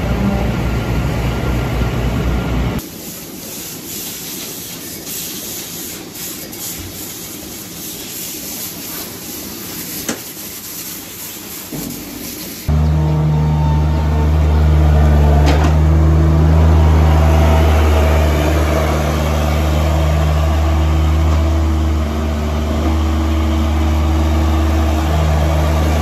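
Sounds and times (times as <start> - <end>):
water hose spraying: 2.8 - 12.7, 16.5 - 26.0
straw blower rushing: 12.7 - 26.0
tractor engine droning: 12.7 - 26.0.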